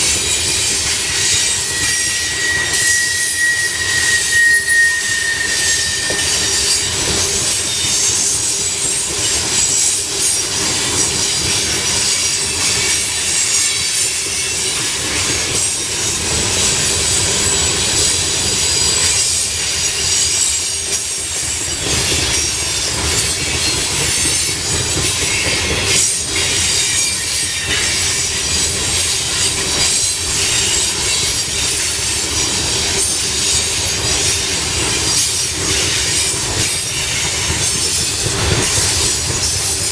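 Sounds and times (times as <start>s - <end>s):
high-pitched wheel squeal: 0.0s - 10.4s
train wheels rumbling on rails: 0.0s - 39.9s.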